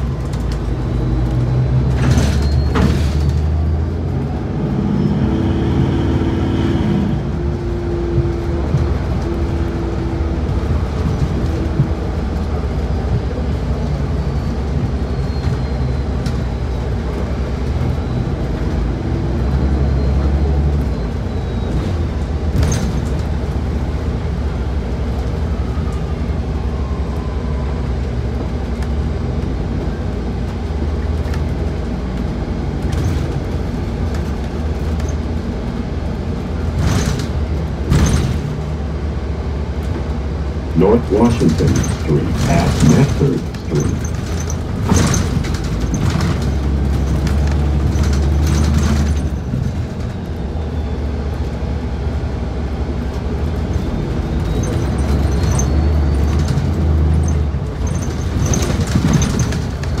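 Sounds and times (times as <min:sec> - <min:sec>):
bus engine rumble: 0:00.0 - 1:00.0
road noise: 0:00.0 - 1:00.0.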